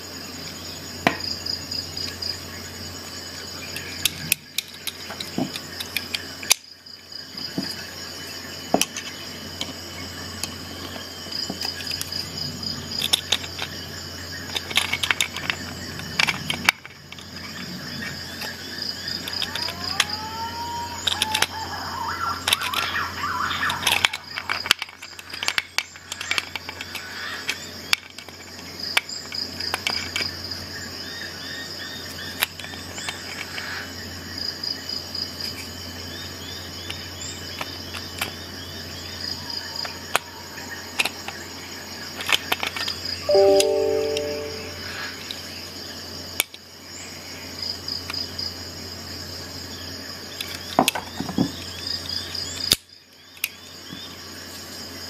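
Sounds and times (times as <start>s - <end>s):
high pulsing chirp: 43.2s - 45.2s.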